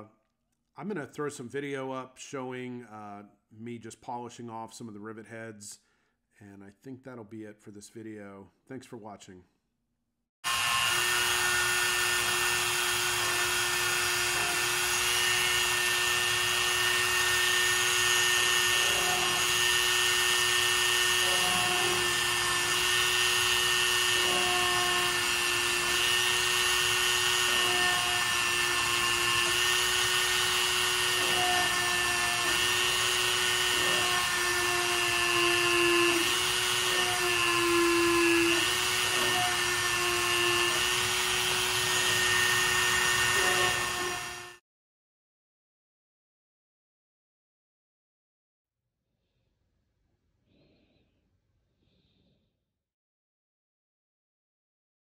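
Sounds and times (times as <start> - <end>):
rotary tool grinding whine: 10.4 - 44.6.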